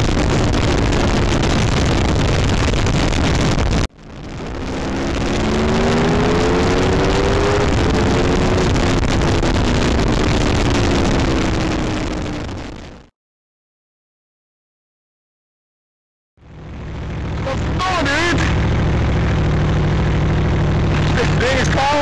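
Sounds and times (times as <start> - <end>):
motorcycle engine: 0.0 - 2.3, 3.1 - 13.1, 16.4 - 22.0
wind rush on microphone: 0.0 - 13.1.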